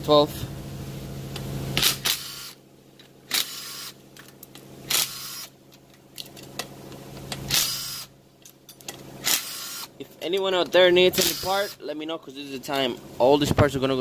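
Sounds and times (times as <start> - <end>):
impact wrench bursts: 1.8 - 2.6, 3.2 - 4.0, 4.8 - 5.6, 7.3 - 8.2, 9.2 - 10.0, 11.1 - 11.8.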